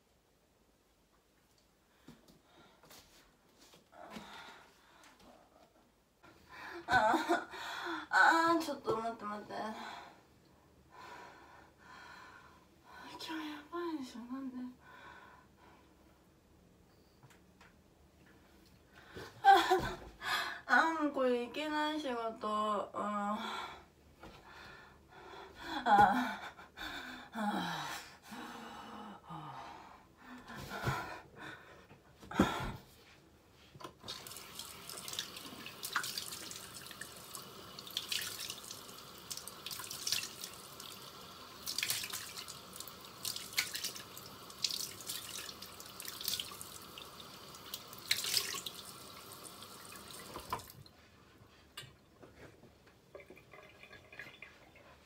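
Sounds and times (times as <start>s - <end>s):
woman's wordless vocal sounds: 20.6s - 23.5s
running water: 34.1s - 50.9s, 53.1s - 55.0s
water splashes: 41.6s - 48.9s.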